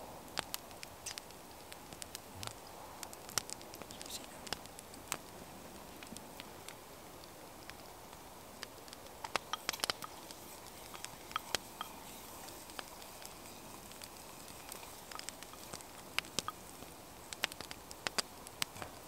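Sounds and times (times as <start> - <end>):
wood fire crackling: 0.0 - 19.0
sharp snaps and pops: 0.3 - 19.0.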